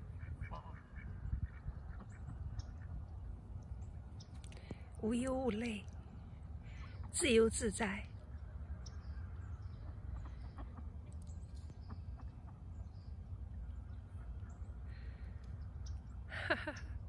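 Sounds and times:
geese and ducks calling: 0.0s - 3.2s, 8.2s - 11.1s
steady low rumble: 0.0s - 17.0s.

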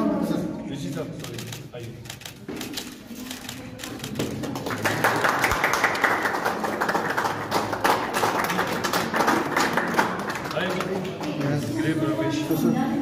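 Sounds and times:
crowd clapping: 3.8s - 12.0s.

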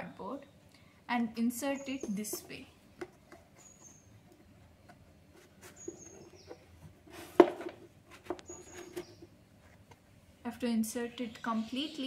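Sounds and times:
bird chirps: 1.6s - 2.4s, 3.6s - 4.2s, 5.6s - 6.7s, 8.4s - 9.3s
cardboard pieces handled: 2.0s - 10.1s.

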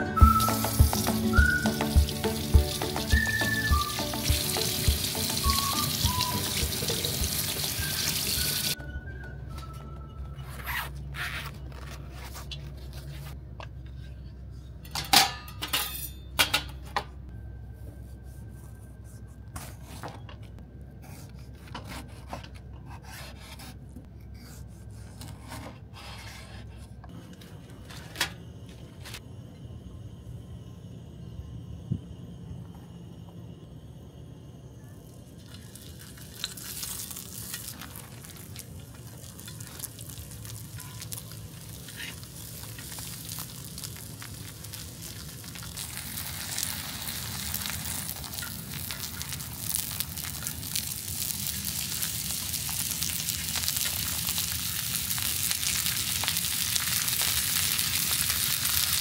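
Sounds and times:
quiet background music: 0.0s - 13.3s
tap water running into sink: 0.4s - 8.8s.

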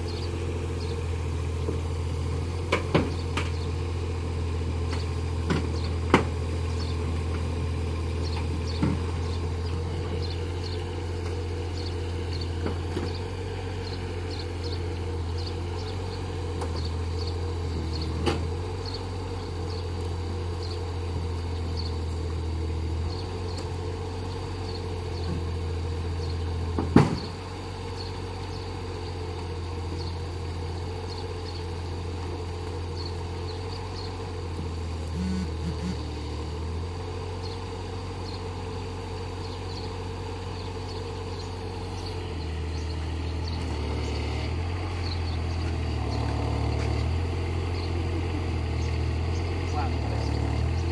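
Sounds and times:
diesel engine running: 0.0s - 50.9s.

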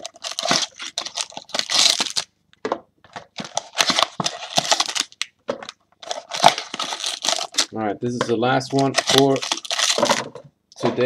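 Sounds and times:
foil packs crinkling: 0.0s - 2.3s, 3.2s - 5.2s, 6.0s - 7.8s, 8.6s - 10.3s.

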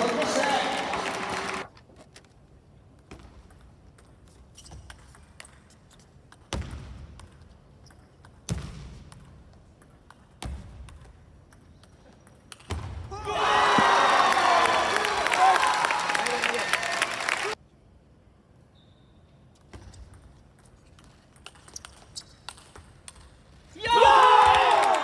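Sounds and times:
crowd cheering and applause: 0.0s - 1.7s, 13.2s - 17.6s, 24.0s - 25.0s.

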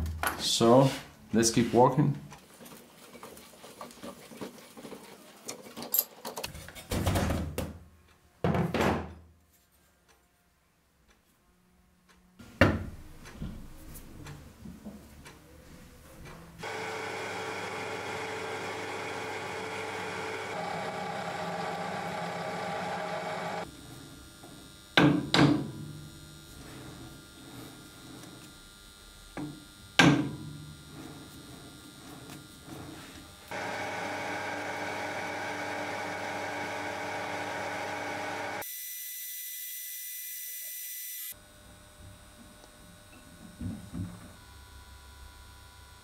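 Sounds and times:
machine running steadily: 16.6s - 38.6s.

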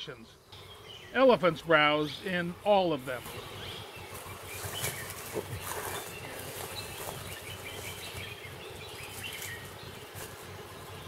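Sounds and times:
leaves and twigs rustling: 3.1s - 11.0s.

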